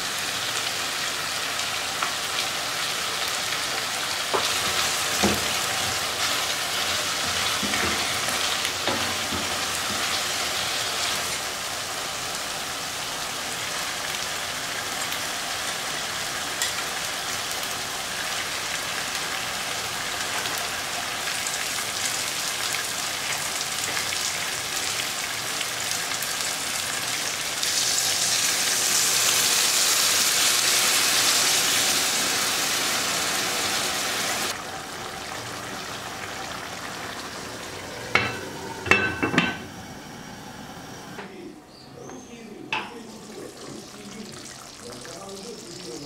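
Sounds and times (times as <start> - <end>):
food sizzling in a frying pan: 0.0 - 41.2, 42.8 - 46.0
water poured into hot pan: 21.3 - 39.5
glass lid clinking: 38.2 - 39.6.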